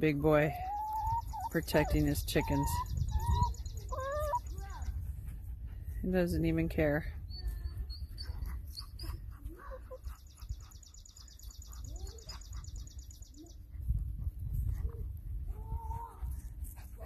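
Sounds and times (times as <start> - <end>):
low rumble on microphone: 0.0 - 17.0
songbird trilling: 0.6 - 4.8.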